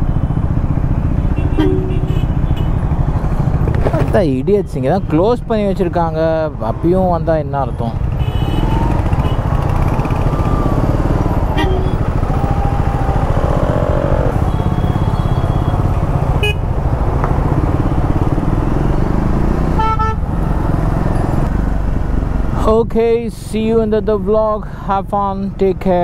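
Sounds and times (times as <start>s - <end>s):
road noise: 0.0s - 26.0s
vehicle horns honking: 1.3s - 2.8s, 8.2s - 9.5s, 11.5s - 12.0s, 14.4s - 15.8s, 16.4s - 16.6s, 19.8s - 20.2s
motorcycle engine running: 8.0s - 18.7s.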